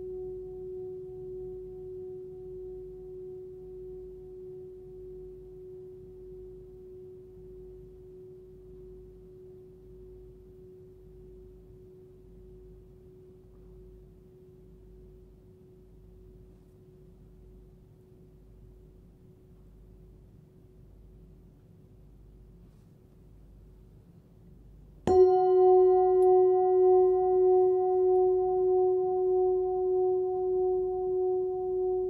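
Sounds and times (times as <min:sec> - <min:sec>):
singing bowl ringing: 0:00.0 - 0:14.7, 0:25.1 - 0:32.0.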